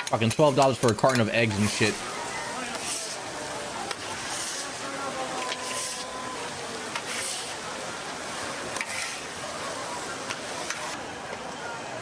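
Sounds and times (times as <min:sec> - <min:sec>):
metal utensils clicking: 0:00.0 - 0:01.9
food sizzling on hot surface: 0:01.4 - 0:11.0.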